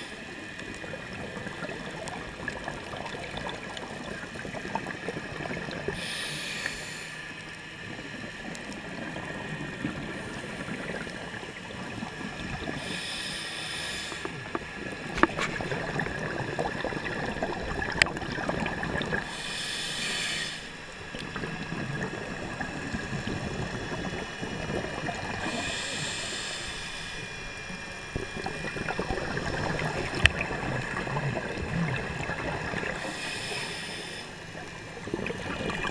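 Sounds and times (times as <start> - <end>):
bursts of underwater bubbles: 15.1 - 19.3.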